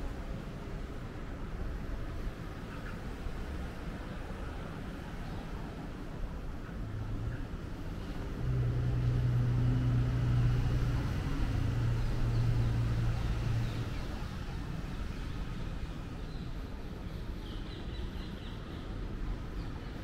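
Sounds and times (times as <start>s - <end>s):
outdoor background noise: 0.0s - 20.0s
vehicle engine hum: 6.6s - 17.3s.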